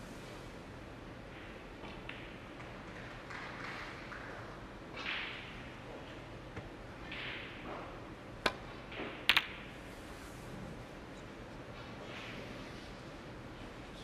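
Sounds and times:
snooker balls clicking: 0:01.3 - 0:09.8.

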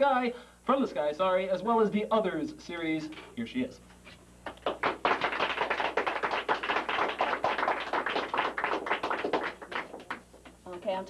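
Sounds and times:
audience applauding: 0:04.5 - 0:10.3.

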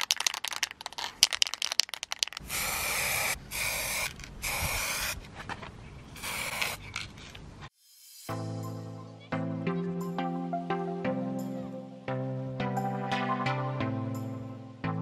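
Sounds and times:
spray can ball rattling: 0:00.0 - 0:05.2, 0:06.2 - 0:07.4
spray can hissing: 0:02.3 - 0:05.2, 0:06.2 - 0:06.9.

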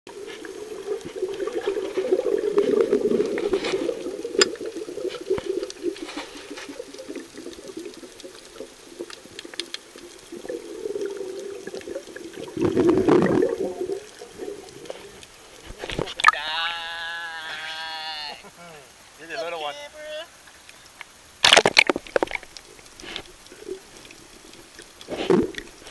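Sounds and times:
snorkel bubbling: 0:00.1 - 0:16.5, 0:21.8 - 0:25.9
muffled underwater water noise: 0:00.1 - 0:25.9
rush of water: 0:00.1 - 0:25.9
small clicks: 0:06.9 - 0:10.3.

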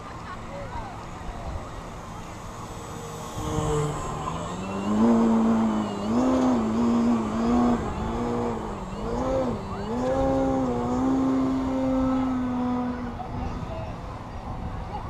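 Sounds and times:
model airplane motor whining: 0:00.0 - 0:14.2
wind buffeting microphone: 0:01.2 - 0:15.0.

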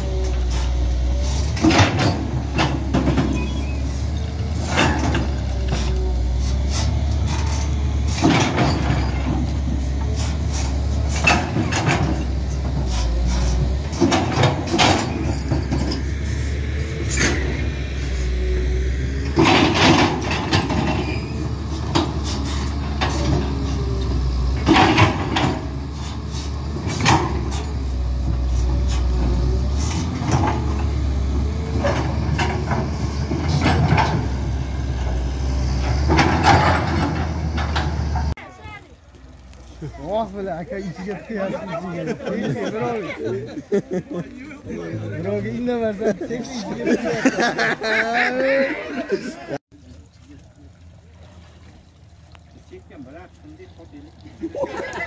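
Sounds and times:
excavator diesel engine running: 0:00.0 - 0:47.9
metal clanks and bangs: 0:00.2 - 0:17.8, 0:19.2 - 0:23.8, 0:24.5 - 0:26.1, 0:26.7 - 0:38.4.

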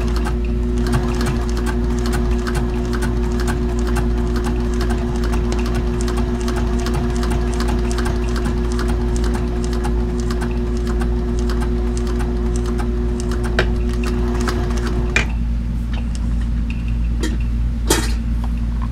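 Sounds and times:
sewing machine needle ticking: 0:00.0 - 0:15.0
sewing machine motor hum: 0:00.0 - 0:15.4.

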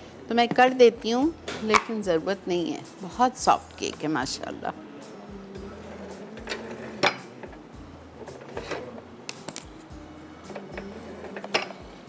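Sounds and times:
soft background music: 0:00.0 - 0:12.0
kitchen utensils clinking: 0:06.1 - 0:07.6, 0:10.6 - 0:11.8.

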